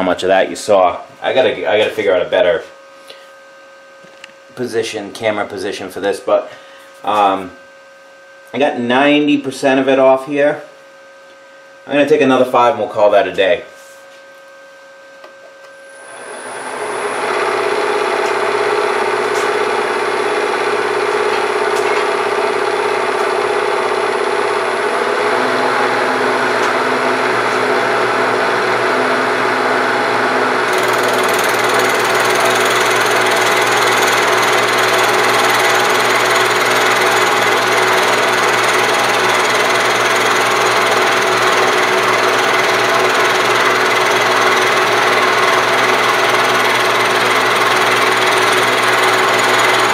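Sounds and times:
milling spindle spinning up: 15.9s - 28.2s, 30.6s - 49.9s
end mill cutting metal: 16.0s - 49.9s.

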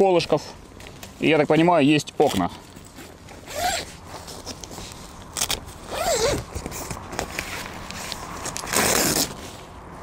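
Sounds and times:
tent fabric rustling: 2.8s - 10.0s.

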